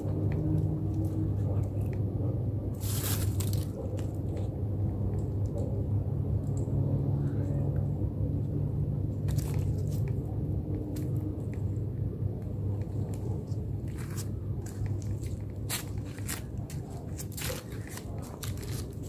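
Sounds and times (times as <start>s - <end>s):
low rumbling hum: 0.0s - 19.0s
cats scuffling: 2.7s - 4.5s, 12.8s - 19.0s.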